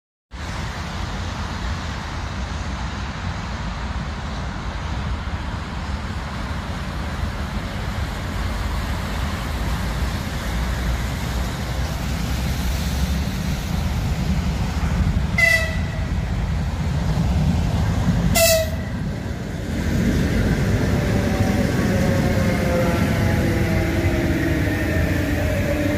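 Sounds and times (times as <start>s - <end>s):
electric train rumble: 0.3s - 25.9s
wheels rumbling on rails: 0.3s - 25.9s
train horn toots: 15.4s - 16.2s, 18.3s - 19.0s.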